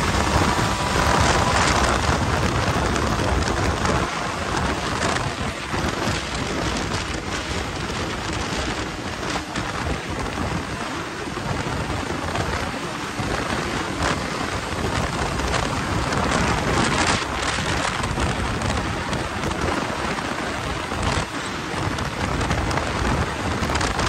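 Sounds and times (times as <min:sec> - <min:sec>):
snowmobile running: 0:00.0 - 0:24.0
wind on microphone: 0:00.0 - 0:24.0.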